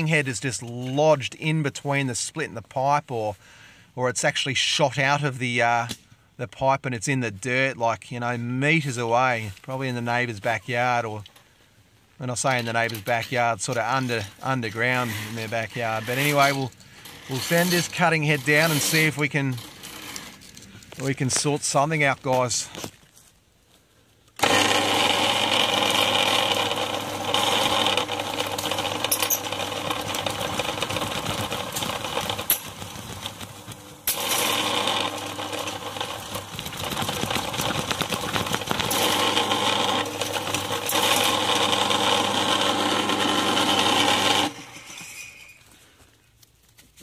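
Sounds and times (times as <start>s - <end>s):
drain cleaning machine running: 14.9s - 20.4s, 24.4s - 44.9s.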